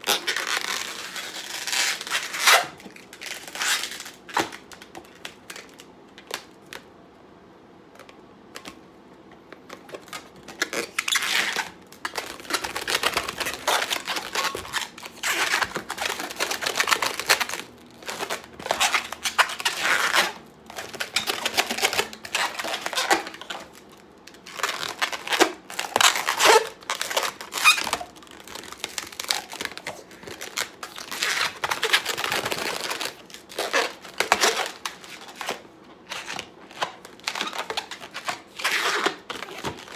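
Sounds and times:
balloons rubbing and squeaking: 0.0 - 4.7, 9.8 - 23.8, 24.4 - 39.9.

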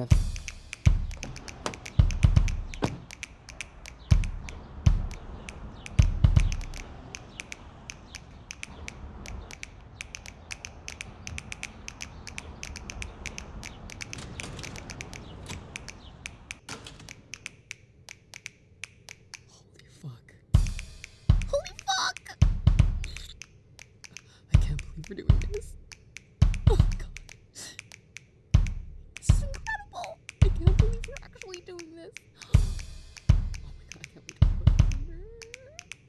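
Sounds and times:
heavy thumps: 0.0 - 17.1
clicks and taps at door lock: 0.9 - 4.2.

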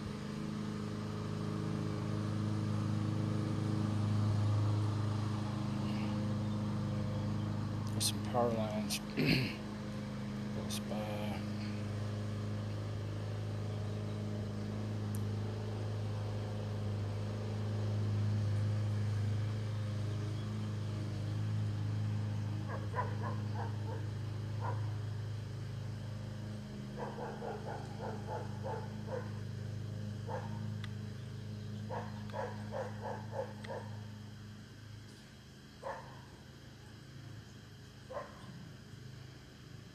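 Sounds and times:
steady low hum: 0.0 - 39.9
dog barking: 22.7 - 24.9, 27.0 - 29.4, 30.3 - 30.6, 31.9 - 34.0, 35.8 - 36.2, 38.1 - 38.5.

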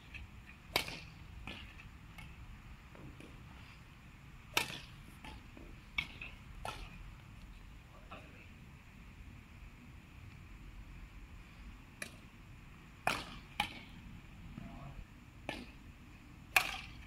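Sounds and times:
low background hum: 0.0 - 17.0
rackets striking shuttlecock: 0.1 - 3.4, 4.5 - 7.0, 12.0 - 12.2, 13.0 - 13.9, 15.4 - 15.8, 16.5 - 17.0.

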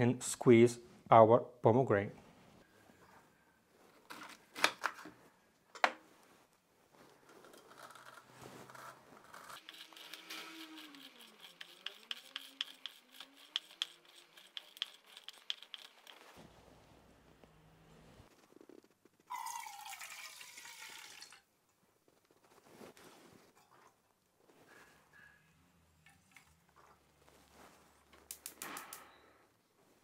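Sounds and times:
fruit crackling on citrus juicer: 9.6 - 16.3.

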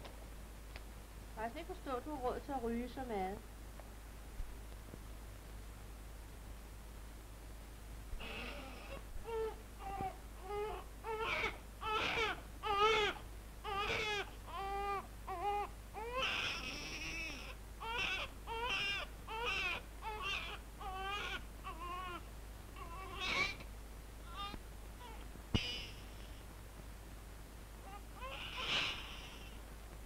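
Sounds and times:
infant crying: 8.2 - 23.7, 24.3 - 26.4, 27.8 - 29.6.

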